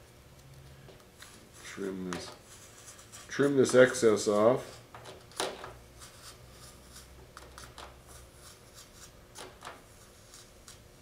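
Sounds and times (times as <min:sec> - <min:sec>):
razor blade scraping and cutting: 0:06.0 - 0:10.9.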